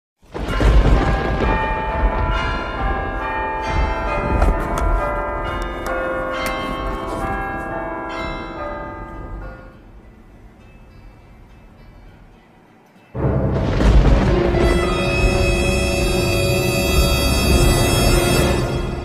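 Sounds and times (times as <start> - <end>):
bells ringing: 0.4 - 13.6, 14.6 - 19.0
deep rumble: 13.2 - 18.2.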